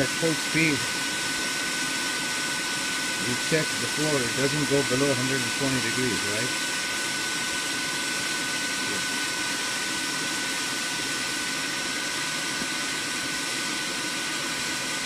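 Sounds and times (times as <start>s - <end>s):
heater blower rushing air: 0.0s - 15.0s
high whine: 0.0s - 15.0s.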